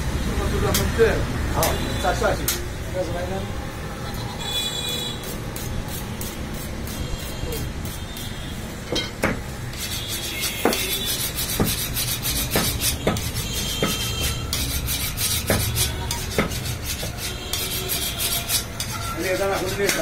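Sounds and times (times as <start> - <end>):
rasping and scraping: 5.1 - 8.5, 9.7 - 20.0
sharp knocks: 8.9 - 9.5, 11.5 - 11.8, 12.4 - 14.4, 15.3 - 17.2.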